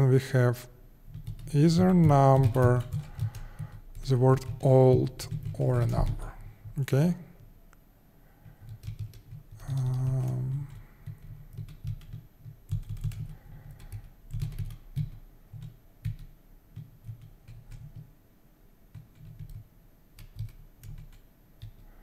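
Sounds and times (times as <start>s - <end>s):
typing on computer keyboard: 1.1s - 6.8s, 8.4s - 18.1s, 18.9s - 21.9s.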